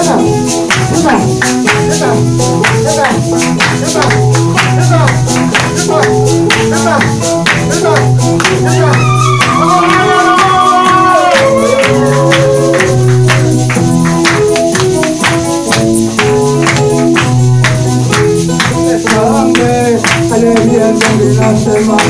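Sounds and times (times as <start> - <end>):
person singing: 0.0 - 13.5, 18.6 - 22.0
keyboard chords: 0.0 - 22.0
sharp percussive strikes: 0.0 - 22.0.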